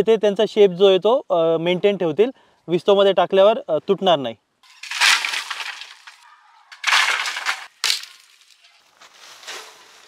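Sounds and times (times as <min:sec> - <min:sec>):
dry sticks and leaves crunching: 0:04.7 - 0:10.0.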